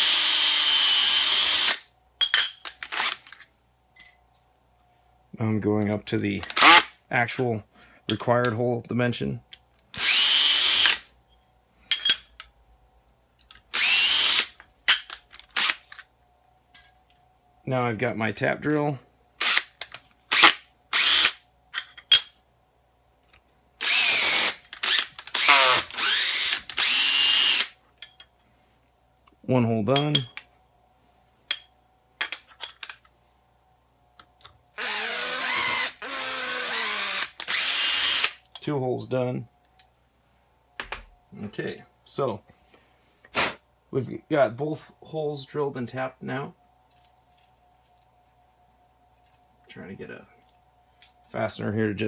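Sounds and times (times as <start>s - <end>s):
drill whining into metal: 0.0s - 1.8s, 10.0s - 11.0s, 13.7s - 14.6s, 19.4s - 21.4s, 23.8s - 27.8s, 34.8s - 38.4s
metallic clinks: 4.0s - 4.3s.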